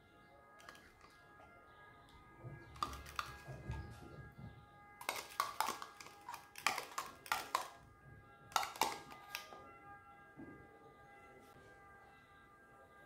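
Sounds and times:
soft background music: 0:00.0 - 0:13.0
spoon scraping plastic cup: 0:00.6 - 0:01.2, 0:02.8 - 0:03.9, 0:05.0 - 0:07.8, 0:08.5 - 0:09.5.

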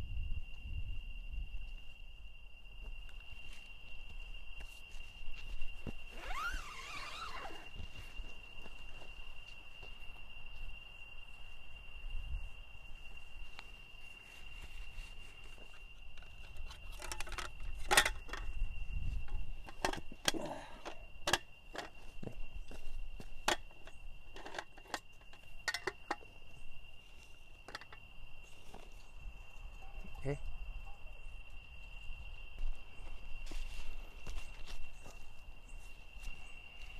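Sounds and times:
insect trilling: 0:05.9 - 0:09.4.

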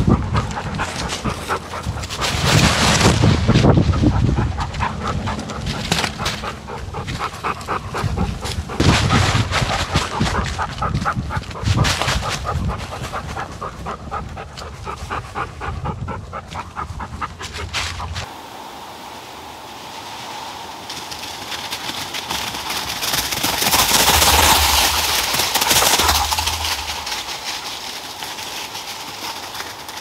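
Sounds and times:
dog panting: 0:00.0 - 0:18.3, 0:22.2 - 0:29.9
dry leaves crunching underfoot: 0:21.0 - 0:30.0.

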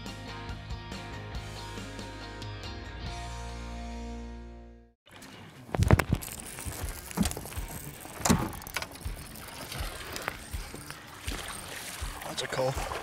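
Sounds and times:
background music: 0:00.0 - 0:05.6, 0:06.2 - 0:13.0
water splashing: 0:05.1 - 0:13.0.

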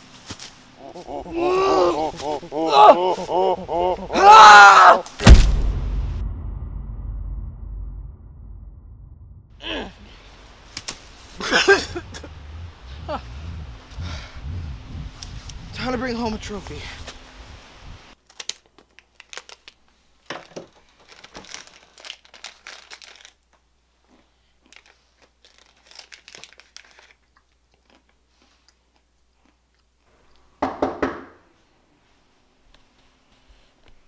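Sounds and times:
plastic snack bag crinkling: 0:18.2 - 0:23.6, 0:24.6 - 0:29.0.

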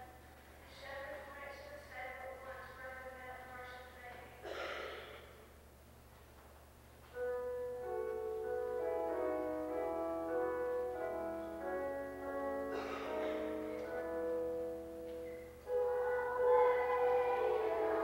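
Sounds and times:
keyboard playing held chords: 0:07.2 - 0:18.0.

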